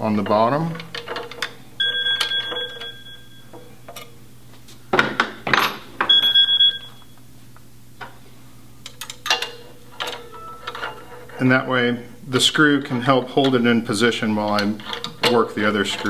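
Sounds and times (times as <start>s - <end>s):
rattling handling noise: 0.0s - 4.2s, 8.8s - 11.6s, 13.1s - 16.0s
high bell-like ring: 1.8s - 3.8s.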